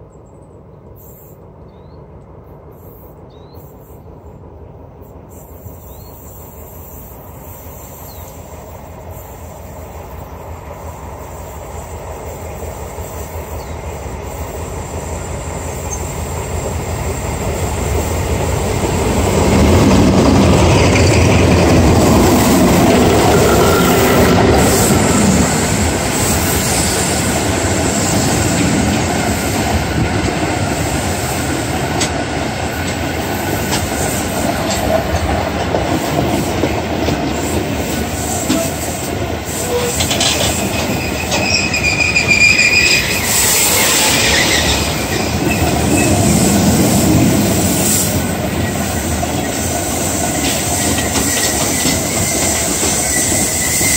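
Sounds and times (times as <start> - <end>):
diesel locomotives passing: 0.0 - 53.9
thin wheel squeal: 39.6 - 46.2, 51.2 - 53.9
wheels clattering over rail joints: 39.7 - 42.3.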